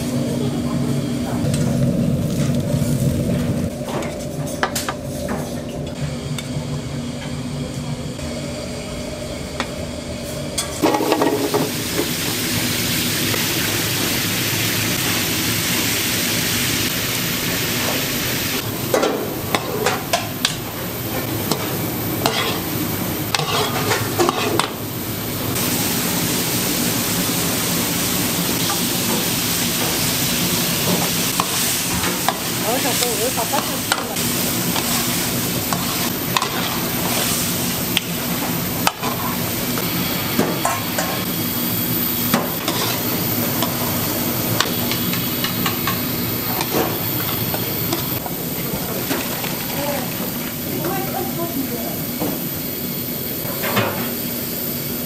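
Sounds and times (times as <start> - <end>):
steady hum: 0.0 - 55.0
food sizzling in a hot pan: 10.8 - 55.0.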